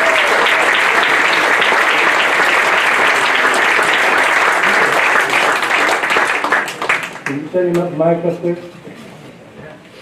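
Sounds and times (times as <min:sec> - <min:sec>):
audience clapping: 0:00.0 - 0:07.8.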